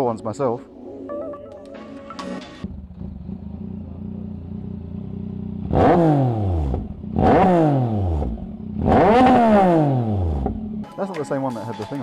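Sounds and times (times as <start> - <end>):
motorcycle engine idling and revving: 2.3 - 10.9.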